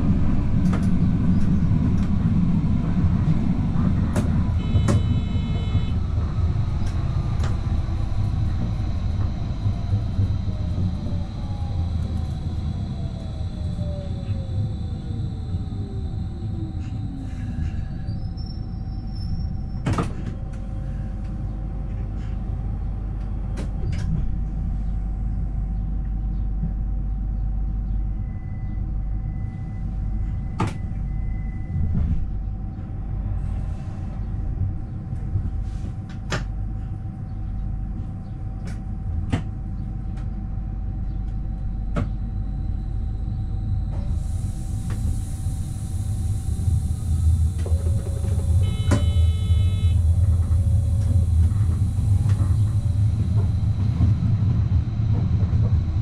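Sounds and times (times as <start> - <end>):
constant whine: 0.0 - 56.0
rumble of wheels on rail: 0.0 - 56.0.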